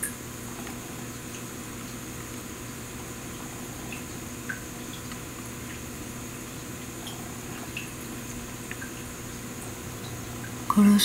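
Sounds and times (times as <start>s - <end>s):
steady low hum: 0.0s - 11.0s
water drips or bubble pops: 3.2s - 10.8s.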